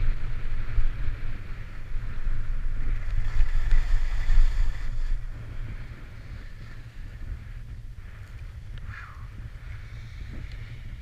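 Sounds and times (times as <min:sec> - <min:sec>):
skis scraping over snow: 0:00.0 - 0:07.8
wind buffeting microphone: 0:00.0 - 0:11.0.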